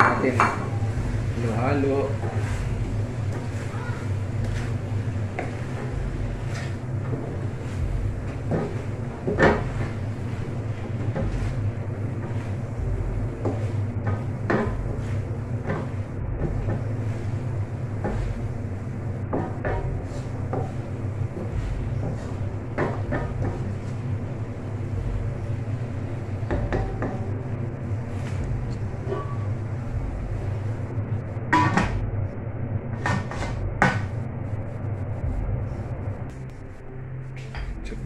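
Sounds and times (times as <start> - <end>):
spatula scraping and knocking a wok: 0.0 - 18.6, 19.2 - 24.1, 26.3 - 27.3
steady low hum: 0.0 - 38.0.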